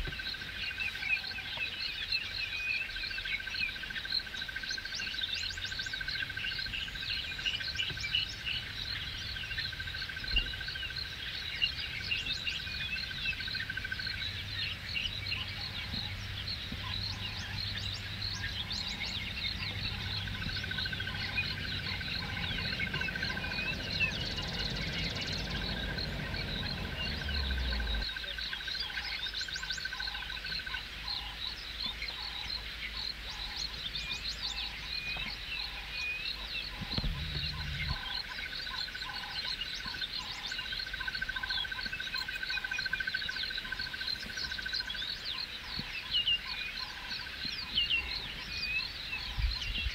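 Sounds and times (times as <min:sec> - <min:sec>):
birds chirping and calling: 0:00.0 - 0:49.9
low rumble: 0:08.1 - 0:28.1, 0:36.7 - 0:38.2.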